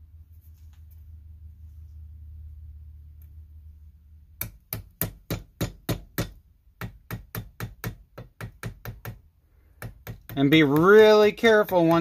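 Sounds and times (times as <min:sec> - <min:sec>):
hammer tapping steel punch: 0:04.4 - 0:09.2, 0:09.8 - 0:12.0.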